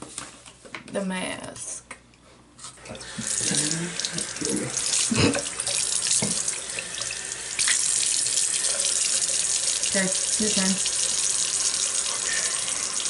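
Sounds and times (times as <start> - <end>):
sink tap running: 2.8 - 13.0.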